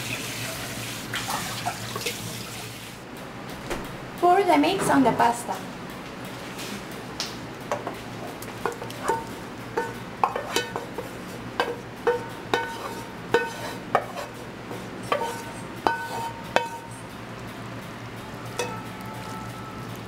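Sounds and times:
spatula and pan clinking on metal pot: 0:08.6 - 0:16.9, 0:18.6 - 0:18.8.

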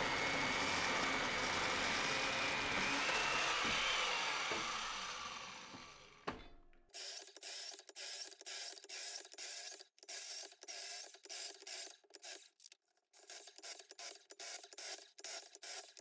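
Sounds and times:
mortiser motor whine: 0:00.0 - 0:06.3.

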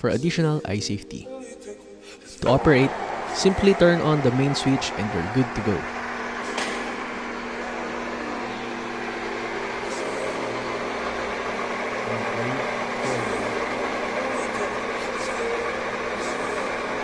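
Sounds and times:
metal lathe motor hum: 0:02.4 - 0:17.0.

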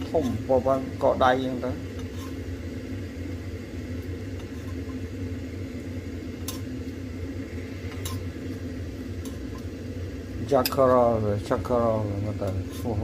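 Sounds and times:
low appliance hum: 0:00.0 - 0:13.0.

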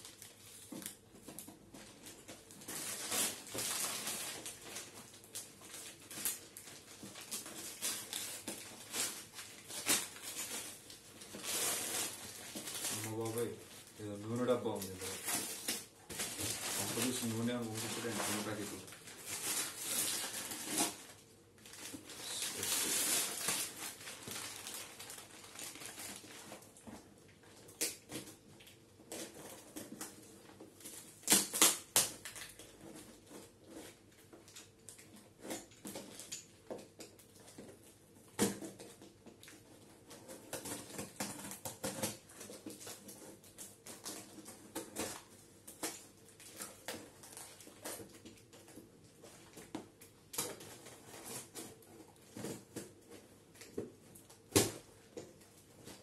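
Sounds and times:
plastic mailer crinkling: 0:00.0 - 0:26.9
knife cutting packing tape: 0:02.6 - 0:04.4, 0:22.1 - 0:24.8, 0:31.2 - 0:32.6.

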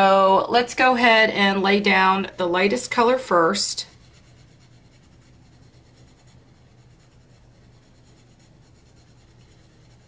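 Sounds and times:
colored pencil scratching paper: 0:03.0 - 0:10.0.

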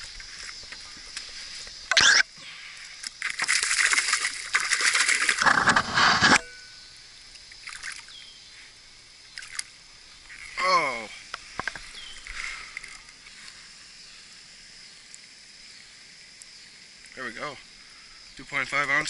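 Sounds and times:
fish splashing in water: 0:03.0 - 0:05.7.

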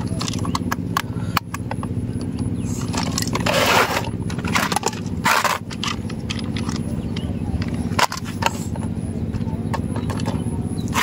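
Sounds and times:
toy cars clicking and knocking: 0:00.0 - 0:09.0, 0:09.7 - 0:11.0
low mechanical hum: 0:00.0 - 0:11.0
scraping rustles: 0:02.6 - 0:08.9.

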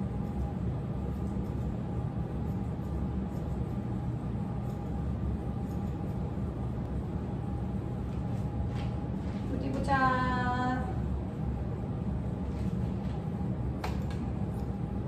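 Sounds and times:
scissors snipping hair: 0:00.0 - 0:07.0, 0:13.8 - 0:14.8
steady low hum: 0:00.0 - 0:15.0.

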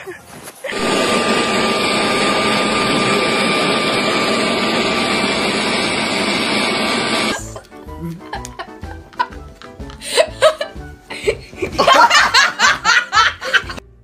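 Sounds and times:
leaf blower running: 0:00.7 - 0:07.6.

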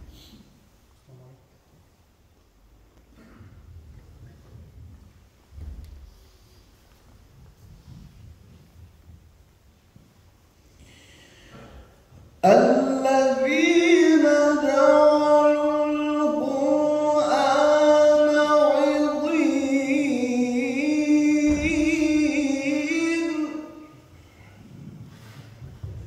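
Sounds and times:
man chanting melodically: 0:12.4 - 0:24.1.

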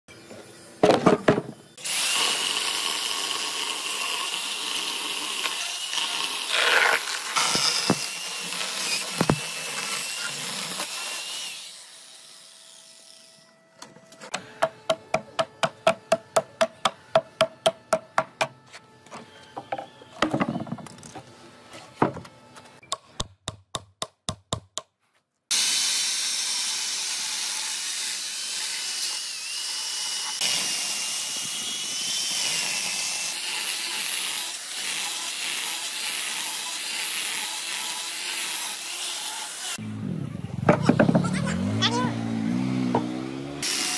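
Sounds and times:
chainsaw cutting wood: 0:01.8 - 0:12.0, 0:25.5 - 0:39.8, 0:40.5 - 0:43.9.

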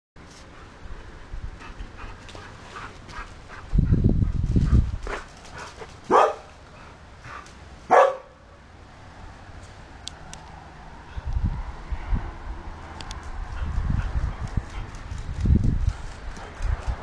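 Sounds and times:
dog barking: 0:06.1 - 0:06.5, 0:07.9 - 0:08.4.

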